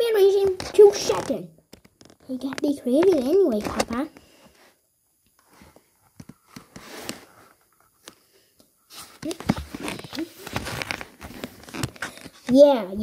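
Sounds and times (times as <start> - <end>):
comic book page turning: 8.9 - 12.5
paper rustling: 8.9 - 12.6.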